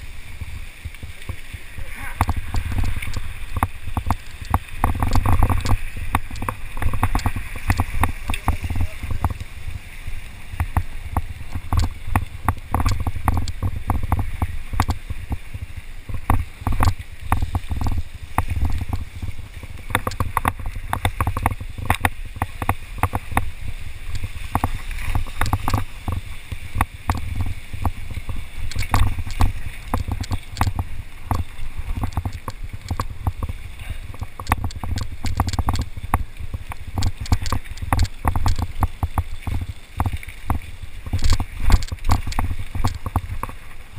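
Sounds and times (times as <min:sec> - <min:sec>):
wind rumble on microphone: 0:00.0 - 0:43.9
bike rattling and knocking: 0:02.1 - 0:09.8, 0:10.5 - 0:43.6.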